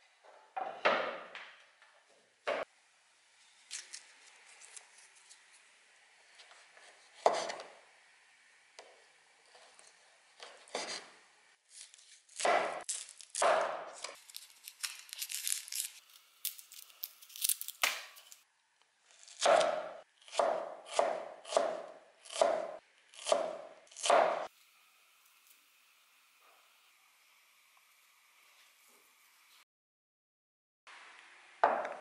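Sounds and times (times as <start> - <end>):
onion skin rustling: 11.7 - 18.4
axe chopping on wooden board: 12.4 - 12.8, 13.4 - 14.1, 19.4 - 24.5.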